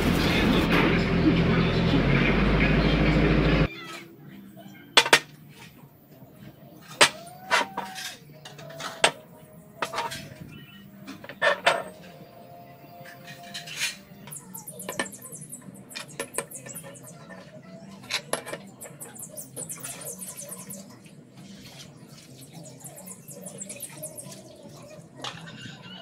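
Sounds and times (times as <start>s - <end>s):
steel parts clinking and scraping: 6.8s - 9.2s, 9.8s - 10.4s, 11.1s - 12.1s, 13.0s - 20.4s, 25.2s - 25.9s
high rapid chirping: 14.2s - 17.6s, 18.7s - 25.1s.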